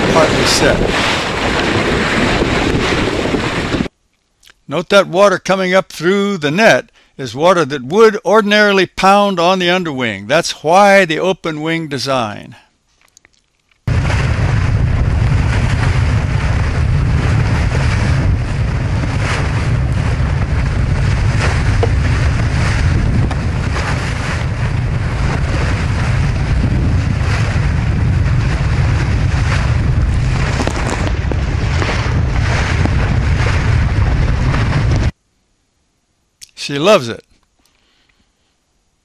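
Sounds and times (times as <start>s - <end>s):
water rushing along hulls: 0.0s - 3.9s, 13.9s - 35.1s
wind buffeting microphone: 0.0s - 4.0s, 13.9s - 35.2s.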